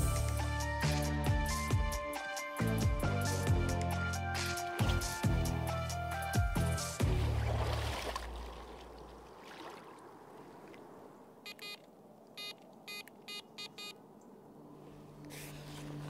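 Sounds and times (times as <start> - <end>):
bite alarm beeps: 11.5 - 11.8, 12.4 - 14.0.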